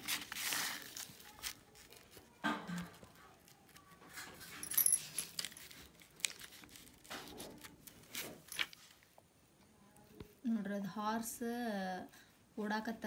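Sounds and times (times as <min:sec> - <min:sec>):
plastic and paper rustling: 0:00.0 - 0:09.2.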